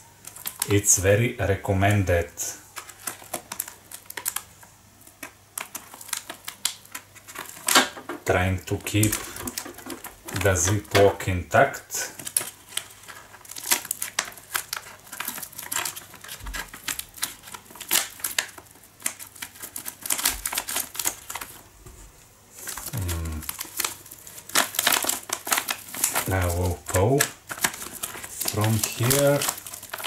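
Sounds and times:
packaging crinkling: 0:00.0 - 0:00.9, 0:01.5 - 0:30.0
scissors cutting plastic: 0:02.7 - 0:08.1, 0:12.2 - 0:21.6, 0:22.6 - 0:30.0.

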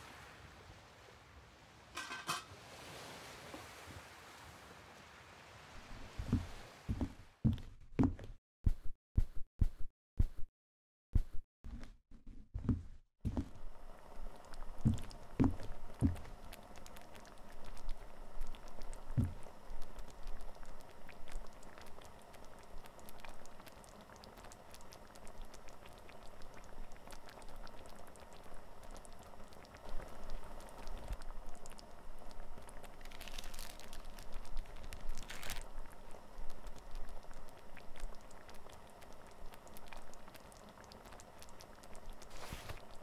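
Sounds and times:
light crackling patter: 0:14.3 - 0:43.0
plastic packaging crinkling: 0:32.6 - 0:36.0.

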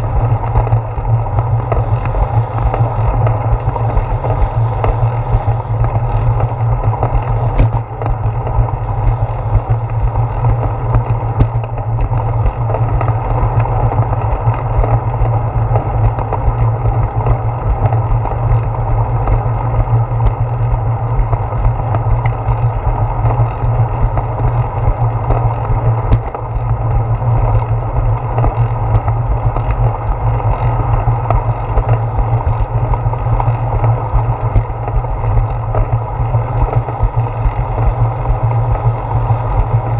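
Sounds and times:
bicycle tyre hum: 0:00.0 - 0:39.9
wind rumble: 0:00.0 - 0:39.9.

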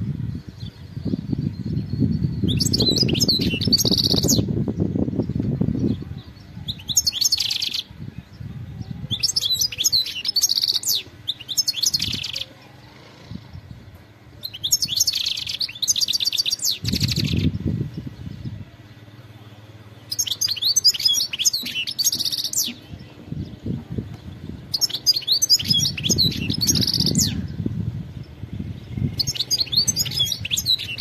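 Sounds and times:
goldfinch twittering: 0:01.8 - 0:04.5, 0:14.4 - 0:17.6, 0:20.0 - 0:23.2, 0:24.2 - 0:27.6, 0:28.7 - 0:31.0.

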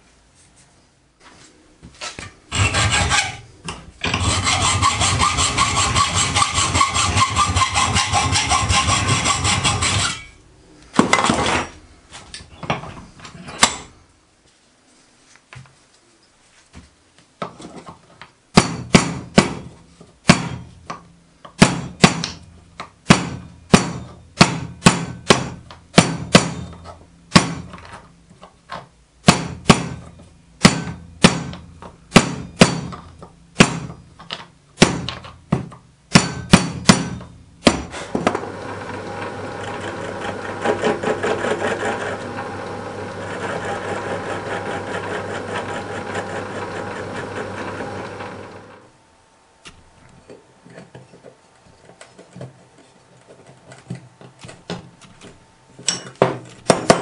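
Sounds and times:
mallet striking copper plate: 0:30.6 - 0:34.0, 0:36.1 - 0:37.9
metalworking lathe running: 0:38.3 - 0:48.9.

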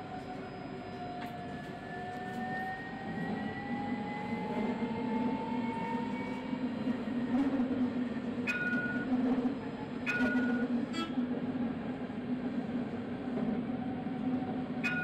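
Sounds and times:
wheels rumbling on rail: 0:00.0 - 0:15.0.

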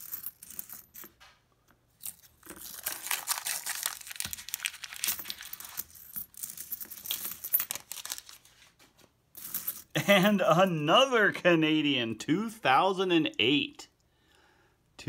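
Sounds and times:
coins clinking and sliding: 0:00.0 - 0:01.2, 0:02.0 - 0:08.4, 0:09.4 - 0:09.9
paper wrapper crinkling and tearing: 0:02.4 - 0:05.8, 0:07.1 - 0:08.7.

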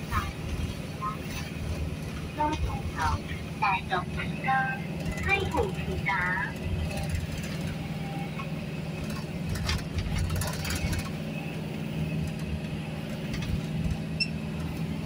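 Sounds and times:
vehicle cabin engine and road drone: 0:00.0 - 0:15.0.

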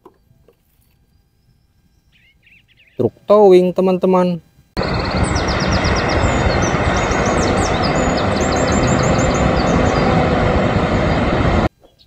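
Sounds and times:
birds chirping: 0:00.0 - 0:03.9, 0:04.8 - 0:12.0
diesel truck engine rumbling: 0:04.8 - 0:11.7.

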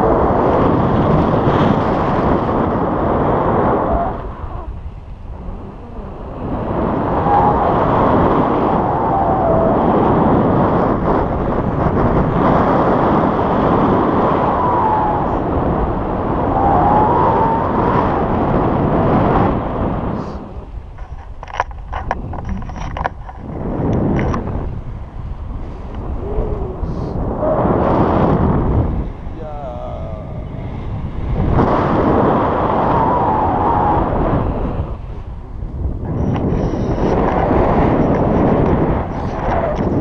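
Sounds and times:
wind rushing over microphone: 0:00.0 - 0:40.0.

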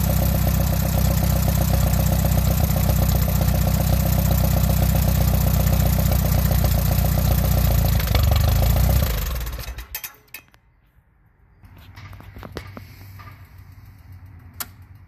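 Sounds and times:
tractor engine running: 0:00.0 - 0:10.5, 0:11.6 - 0:15.0
light clicks of engine stopping: 0:12.8 - 0:15.0.

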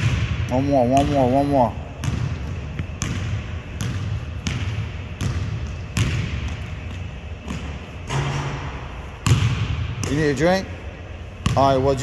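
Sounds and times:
basketball bouncing on wooden floor: 0:02.0 - 0:08.4, 0:09.2 - 0:10.1.

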